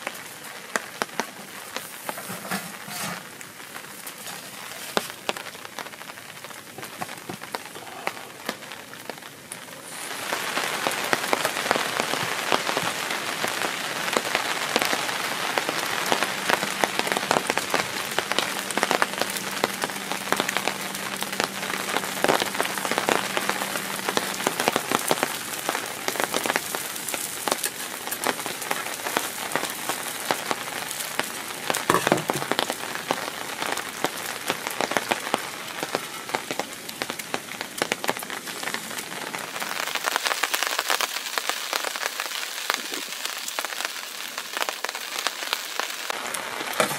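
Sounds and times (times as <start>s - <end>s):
rain pattering on dry leaves: 0.0s - 46.9s.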